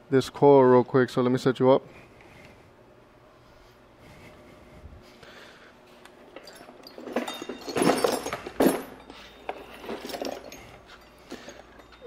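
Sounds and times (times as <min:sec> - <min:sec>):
metal hand tools clinking: 0:06.3 - 0:12.0.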